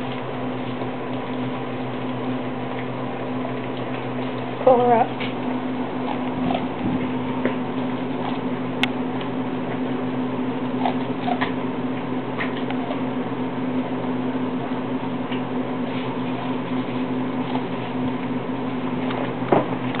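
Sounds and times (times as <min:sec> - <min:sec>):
dog crunching corn kernels: 0:00.0 - 0:10.0, 0:10.6 - 0:13.1
steady hum: 0:00.0 - 0:20.0.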